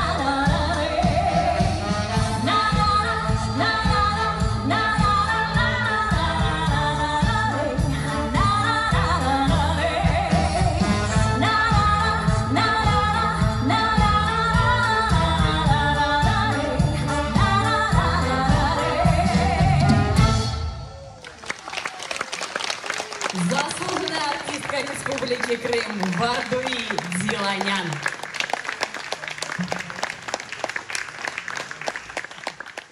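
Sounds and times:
woman singing: 0.0s - 20.4s.

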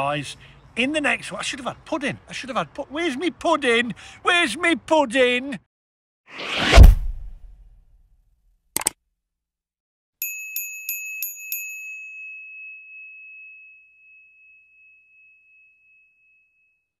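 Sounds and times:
small bell ringing: 10.2s - 17.0s.

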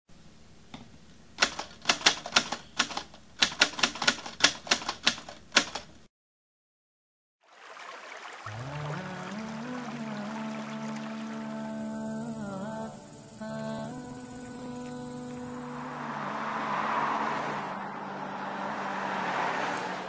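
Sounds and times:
typewriter keys clacking: 1.4s - 5.9s
music: 8.6s - 15.6s.

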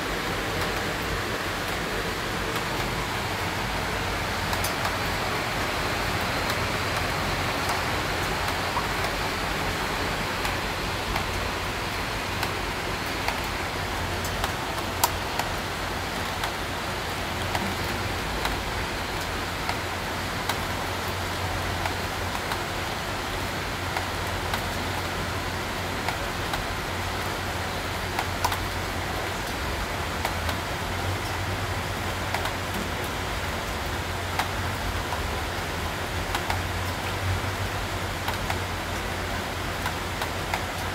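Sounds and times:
steady rain hiss: 0.0s - 40.9s
sharp raindrop ticks: 0.1s - 40.9s.

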